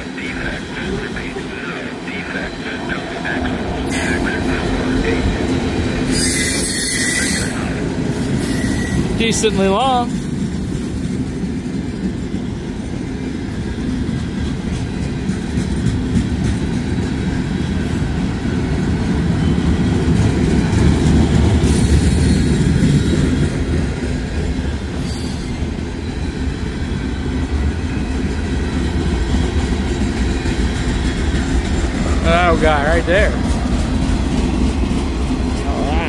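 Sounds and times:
freight train wheels rumbling: 0:00.0 - 0:36.0
high wheel squeals: 0:06.0 - 0:09.3.

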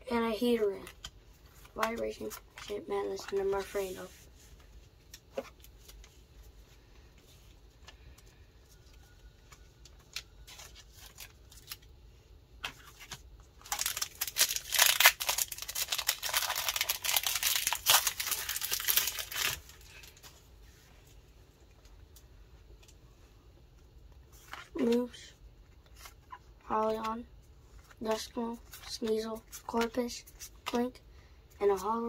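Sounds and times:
foil wrapper tearing and crinkling: 0:10.1 - 0:11.9, 0:12.7 - 0:20.1.

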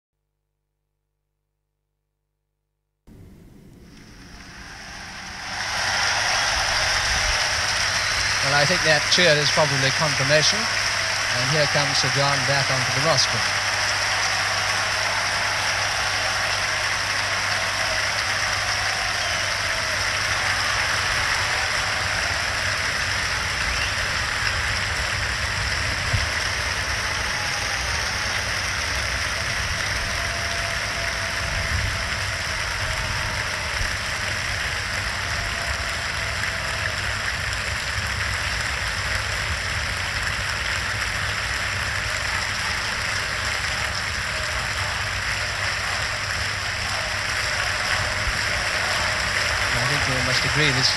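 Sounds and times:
low hum: 0:03.1 - 0:06.1
audience applauding: 0:03.9 - 0:50.9.

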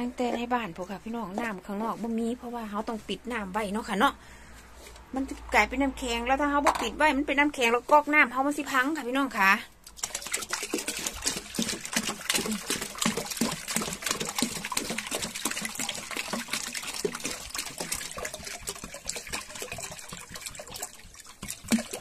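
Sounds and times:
water pouring and splashing: 0:09.8 - 0:22.0
water glugging: 0:09.9 - 0:22.0.

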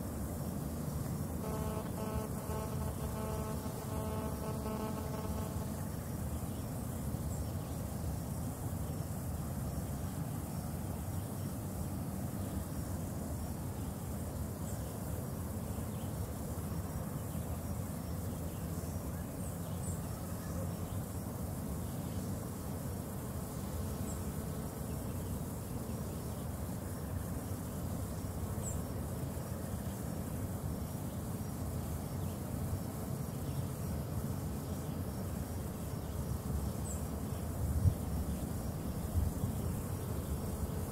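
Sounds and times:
faint steady hum: 0:00.0 - 0:40.9
high insect drone: 0:00.0 - 0:40.9
wind rumble on microphone: 0:37.6 - 0:39.8.

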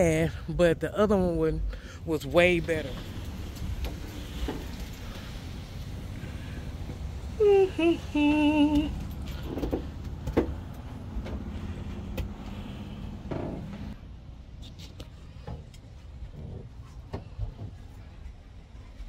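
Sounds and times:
steady low rumble: 0:00.0 - 0:19.0
person humming: 0:07.3 - 0:09.1.

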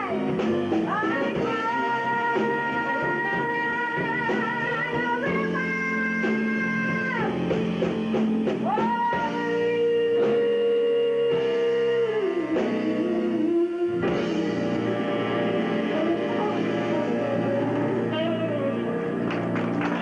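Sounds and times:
woman singing: 0:00.0 - 0:07.5, 0:08.6 - 0:14.8, 0:15.9 - 0:19.2
jazz band playing: 0:00.0 - 0:20.0.

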